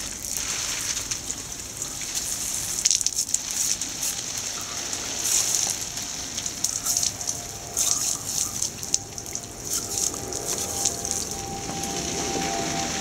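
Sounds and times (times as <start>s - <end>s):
sprinkler spraying water: 0.0s - 13.0s
puppy lapping at water: 6.7s - 11.4s.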